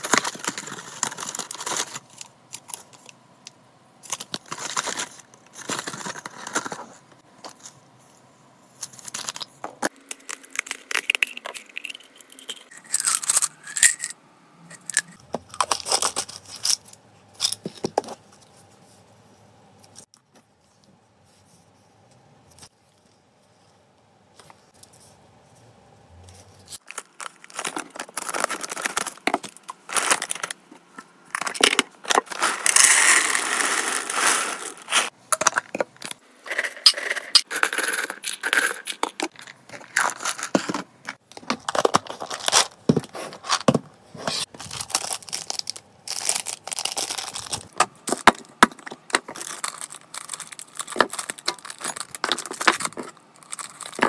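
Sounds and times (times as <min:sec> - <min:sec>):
packaging rustling and crinkling: 0:00.0 - 0:03.1, 0:04.1 - 0:07.6, 0:26.8 - 0:30.6, 0:38.8 - 0:54.0.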